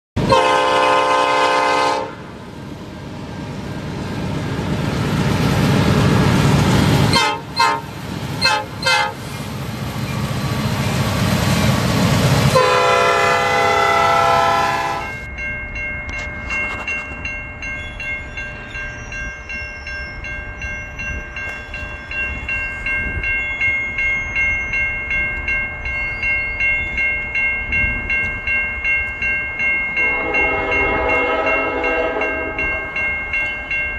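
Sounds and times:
locomotive horn blowing: 0.2s - 2.3s, 7.1s - 9.3s, 12.5s - 15.3s, 30.0s - 32.8s
railroad crossing bell ringing: 0.2s - 33.9s
train rumbling past: 0.2s - 33.9s.

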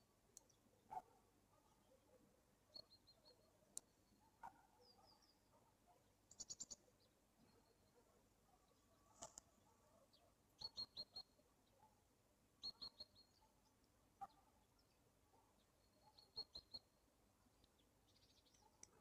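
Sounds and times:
faint bird chirping: 0.0s - 19.0s.

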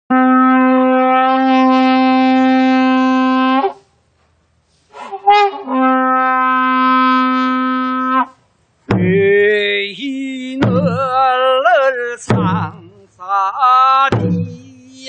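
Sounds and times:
horn blasts: 0.1s - 3.9s, 4.9s - 8.4s
wavering horn note: 0.1s - 3.9s, 4.9s - 8.4s.

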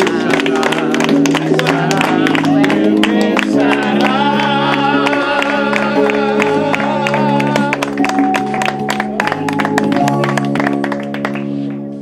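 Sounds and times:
electronic keyboard chords with beat: 0.0s - 12.0s
hands clapping: 0.0s - 12.0s
wavering melody: 3.6s - 12.0s.

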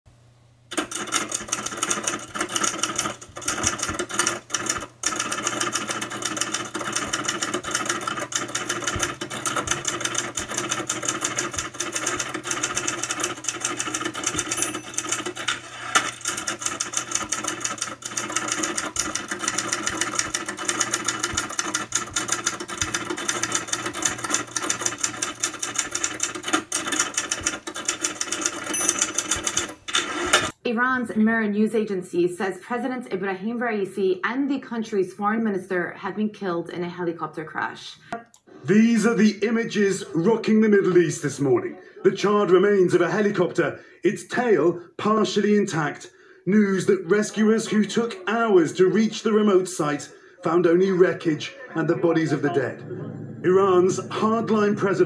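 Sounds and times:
fast mechanical clatter: 0.7s - 30.6s.

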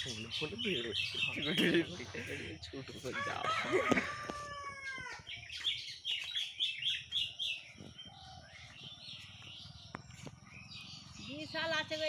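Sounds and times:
small bird chirping: 4.8s - 12.0s.

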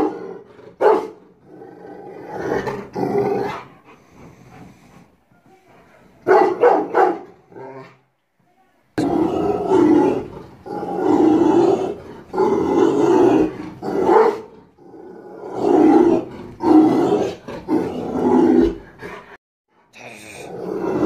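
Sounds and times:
dog barking deeply: 0.0s - 1.2s, 6.2s - 7.4s, 13.4s - 14.5s.

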